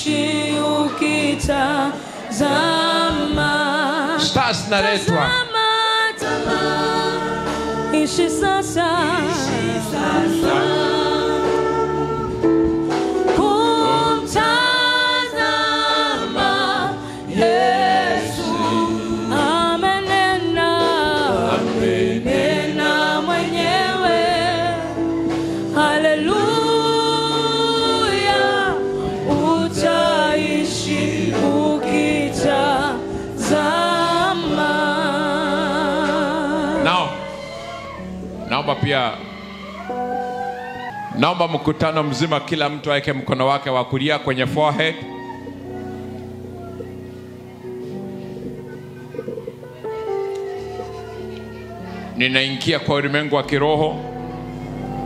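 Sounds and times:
choir singing gospel song: 0.0 - 55.0.

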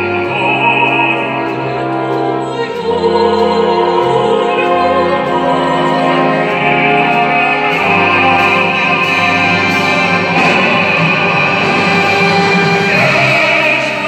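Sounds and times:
symphony orchestra playing: 0.0 - 14.0.

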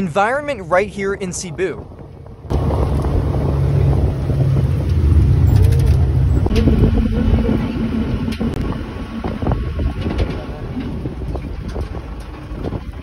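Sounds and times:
vehicle low rumble: 0.0 - 13.0
wind buffeting microphone: 0.3 - 13.0
faint engine tone: 2.5 - 12.4.

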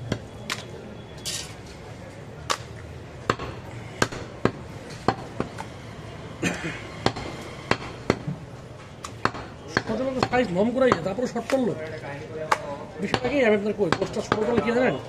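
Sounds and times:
cleaver striking wooden block: 9.2 - 11.6.

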